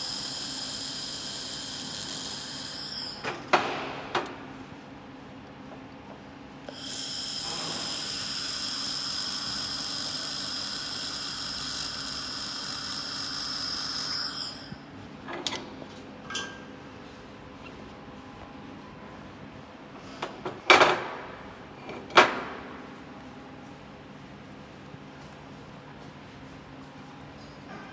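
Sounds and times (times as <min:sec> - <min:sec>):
laser welder hissing and whining: 0:00.0 - 0:03.2, 0:06.7 - 0:14.8.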